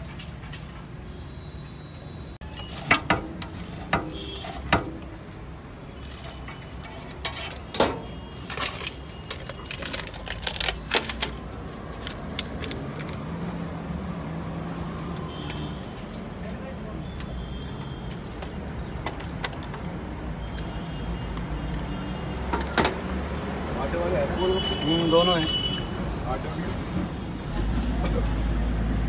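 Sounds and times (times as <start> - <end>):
metal spatula scraping on iron griddle: 2.5 - 4.9, 6.0 - 7.9.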